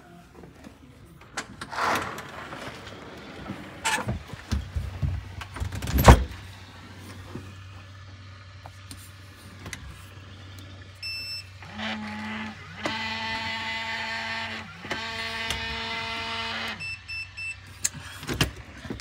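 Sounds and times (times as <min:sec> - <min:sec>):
small electric motor whining: 0:11.4 - 0:16.8
short electronic beeps: 0:16.8 - 0:17.6.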